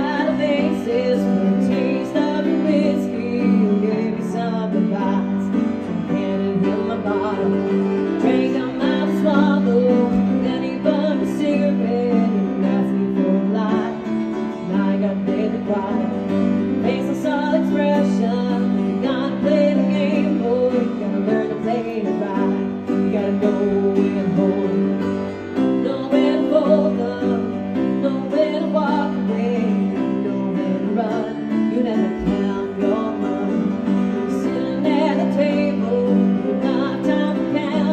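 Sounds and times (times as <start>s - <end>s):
piano playing: 0.0s - 37.9s
woman singing into microphone: 0.0s - 37.9s.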